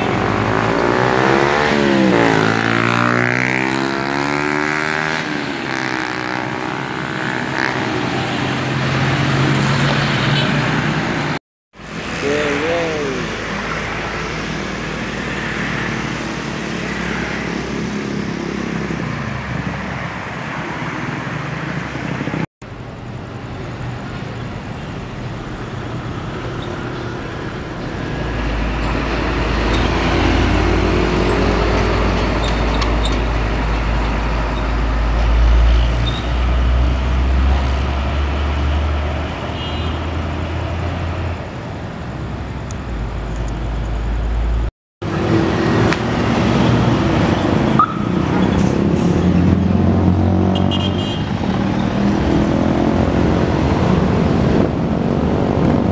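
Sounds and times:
motorcycles passing: 0.0 - 22.4, 24.0 - 35.2, 45.0 - 55.9
cars passing: 0.0 - 55.9
heavy truck engine rumble: 40.1 - 55.9.

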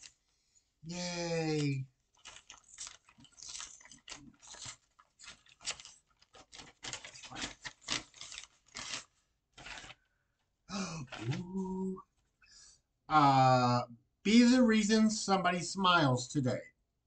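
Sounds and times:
packaging crinkling and tearing: 1.4 - 10.1.

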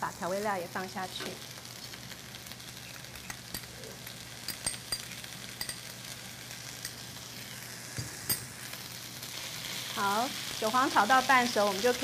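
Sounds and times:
chives sizzling in wok: 0.0 - 12.0
light clinks: 4.5 - 5.9.

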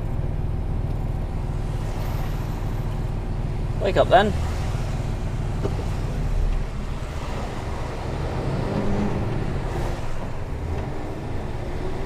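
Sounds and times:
diesel lorry engine rumble: 0.0 - 12.0.

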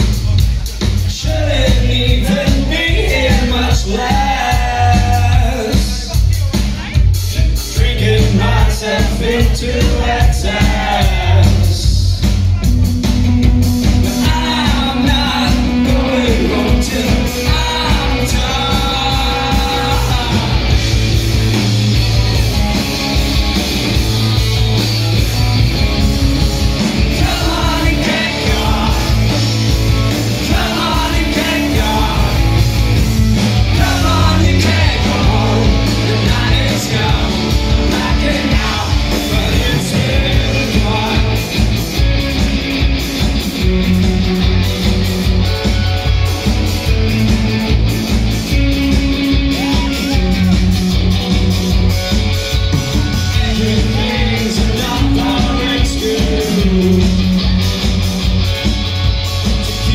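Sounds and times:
bass guitar: 0.0 - 59.9
distorted electric guitars: 0.0 - 59.9
steady drum beat: 0.0 - 59.9
person singing lead vocal: 0.7 - 6.3, 7.4 - 12.1, 14.0 - 20.9, 26.8 - 41.8, 52.9 - 57.6.

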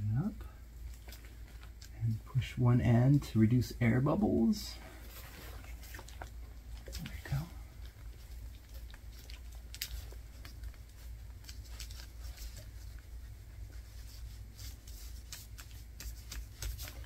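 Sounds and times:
low steady hum: 0.0 - 17.0
fabric rustles and crinkles: 4.4 - 17.0.

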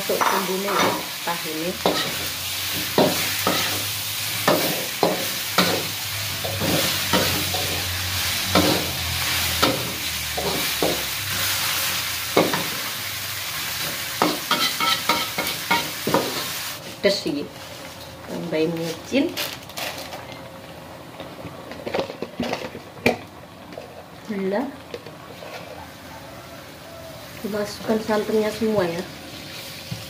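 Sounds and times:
food sizzling in a wok: 0.0 - 19.3, 25.3 - 30.0
metal spatula scraping a pan: 14.2 - 15.9.

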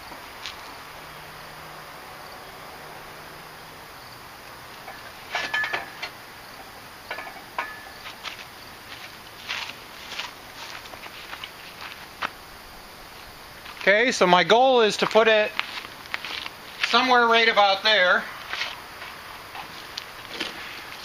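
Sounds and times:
faint steady hum: 0.0 - 21.0
metal parts clinking: 4.8 - 6.2.

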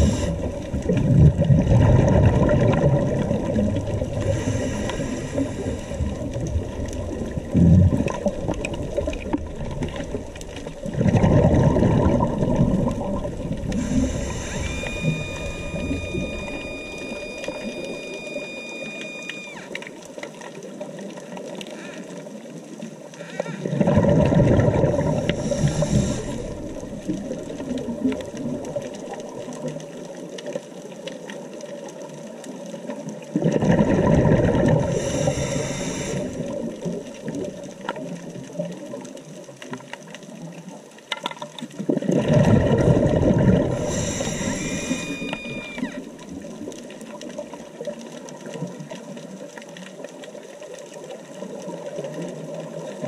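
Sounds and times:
regulator hiss: 0.0 - 0.7, 4.2 - 6.3, 13.5 - 19.8, 25.1 - 27.0, 34.9 - 36.6, 43.7 - 46.2
bubbling underwater exhalations: 0.0 - 4.7, 5.4 - 17.8, 23.6 - 28.7, 33.3 - 35.6, 41.8 - 45.3
water noise: 0.0 - 53.0.

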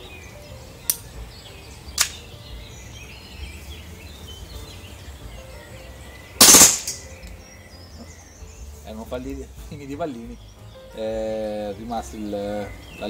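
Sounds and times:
faint bird chirps: 0.0 - 13.0
sharp click: 0.8 - 1.1, 2.0 - 2.2
airsoft pistol burst firing: 6.4 - 7.1.

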